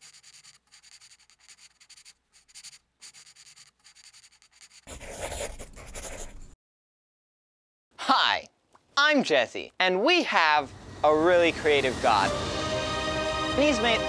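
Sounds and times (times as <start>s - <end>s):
pencil drawing on paper: 0.0s - 6.6s
pencil shading rubbing: 0.0s - 6.6s.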